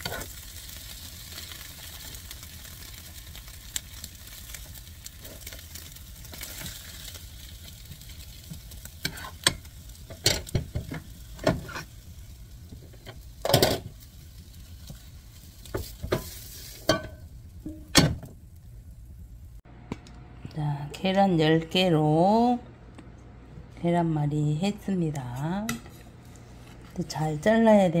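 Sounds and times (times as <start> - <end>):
spatula scraping a pan: 0.0 - 0.4, 8.5 - 12.0, 14.9 - 17.2
egg sizzling in a frying pan: 0.0 - 19.6.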